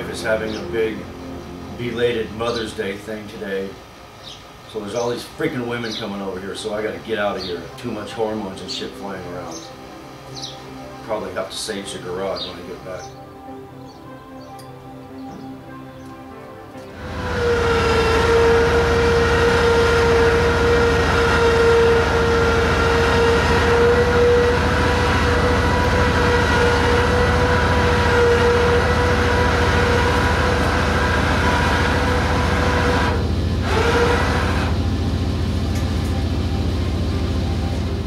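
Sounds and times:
engine whine: 0.0 - 38.0
motorcycle engine running: 16.9 - 38.0.

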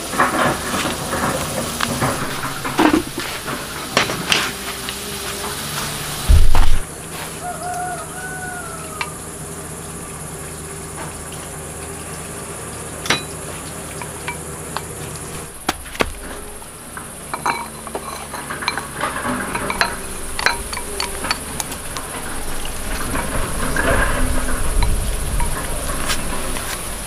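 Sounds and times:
dishes and utensils clinking: 0.0 - 6.8, 13.0 - 26.8
insects buzzing: 0.0 - 27.0
loud low thump: 6.3 - 6.9.

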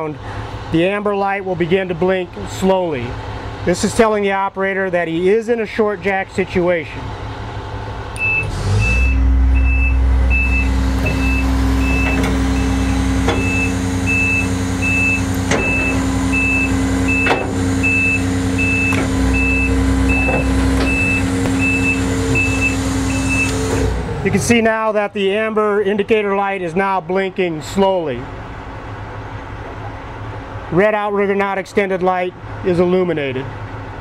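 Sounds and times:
hydraulic drive humming: 8.1 - 24.2
warning beeper: 8.2 - 23.7.

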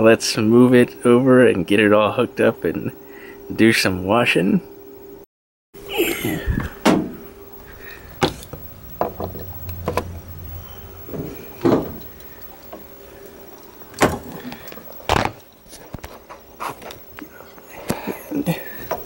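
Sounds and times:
faint steady hum: 0.0 - 5.2, 5.8 - 19.0
hoses and cord knocking: 8.2 - 10.1, 11.1 - 12.9.

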